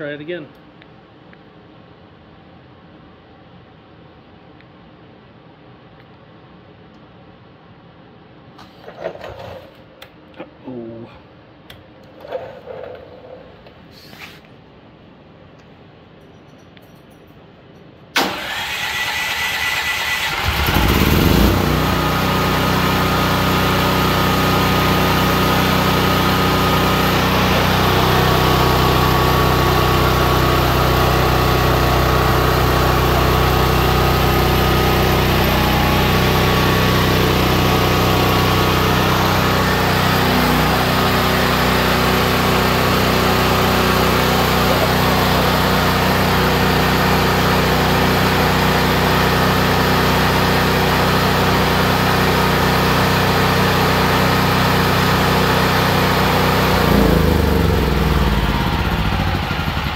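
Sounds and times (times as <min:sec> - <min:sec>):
electric starter cranking: 0:18.2 - 0:47.9
generator engine running: 0:18.2 - 0:59.9.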